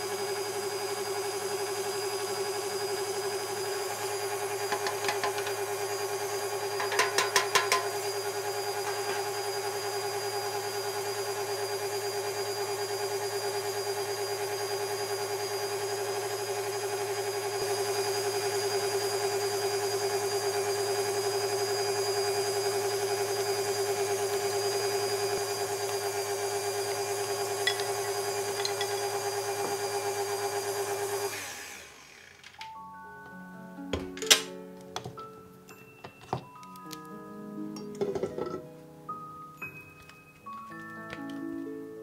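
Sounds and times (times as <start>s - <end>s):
electric mixer whine: 0.0s - 32.6s
mixer click: 4.7s - 5.7s, 6.8s - 8.1s.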